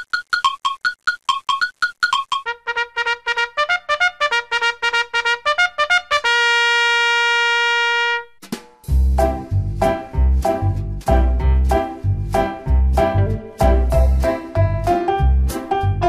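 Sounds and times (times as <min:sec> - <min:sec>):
brass-like staccato intro music: 0:02.4 - 0:16.0
heavy bass beat: 0:08.9 - 0:16.0.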